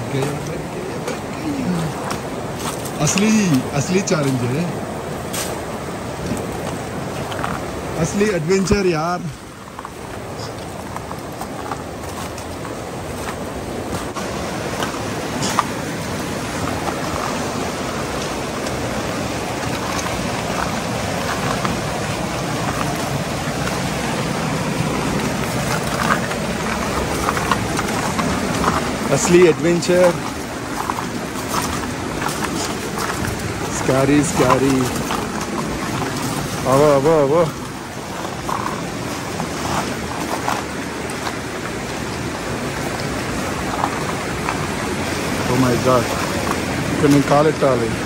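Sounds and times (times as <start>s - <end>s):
river water rushing: 0.0s - 48.0s
boots crunching on ice: 9.7s - 47.4s.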